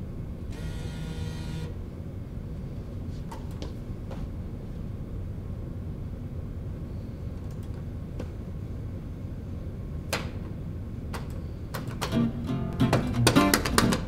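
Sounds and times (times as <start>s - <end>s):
vending machine hum: 0.0s - 14.0s.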